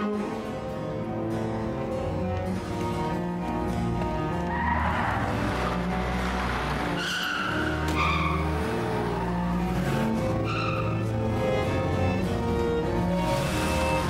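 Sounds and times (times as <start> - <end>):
car tyres squealing: 4.2 - 12.2.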